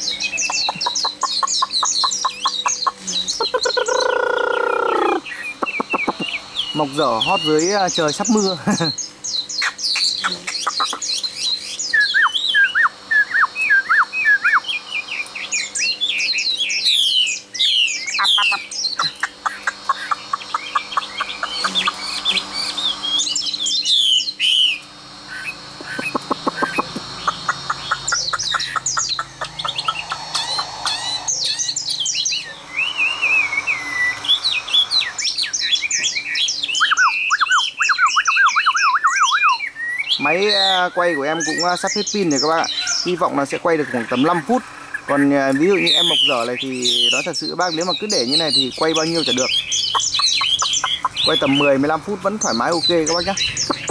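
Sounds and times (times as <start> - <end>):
bird singing varied song: 0.0 - 53.9.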